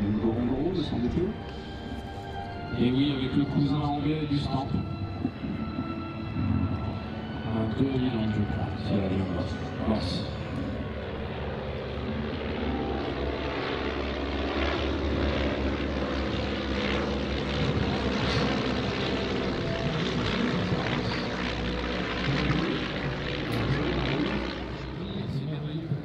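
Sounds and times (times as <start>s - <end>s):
biplane piston engines droning: 0.0s - 26.0s.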